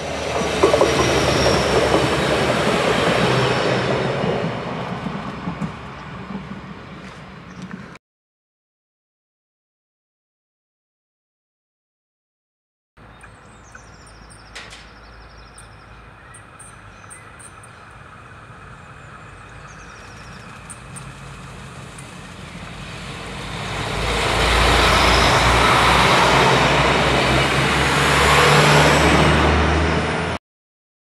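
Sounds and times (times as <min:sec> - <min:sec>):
diesel train engine: 0:00.0 - 0:08.0, 0:13.0 - 0:30.4
train wheels on rails: 0:00.0 - 0:08.0, 0:13.7 - 0:30.4.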